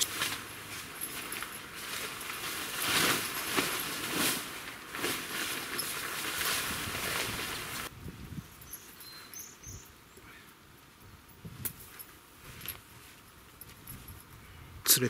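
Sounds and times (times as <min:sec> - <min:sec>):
nylon fabric rustling: 0:00.0 - 0:07.9.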